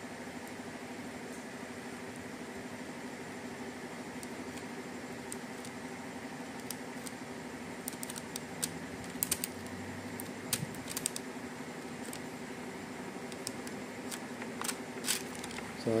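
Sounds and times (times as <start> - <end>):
steady low hum: 0.0 - 16.0
plastic film crackling clicks: 6.5 - 7.2, 7.8 - 11.3, 13.3 - 15.8.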